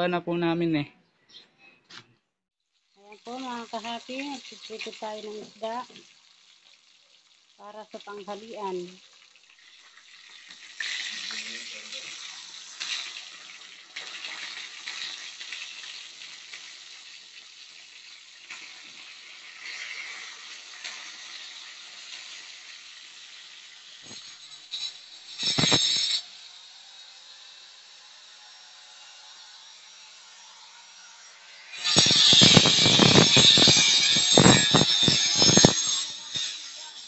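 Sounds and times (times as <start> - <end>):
fish sizzling in oil: 2.6 - 26.5, 31.7 - 37.0
angle grinder cutting concrete: 3.2 - 6.0, 10.8 - 13.4, 18.8 - 37.0.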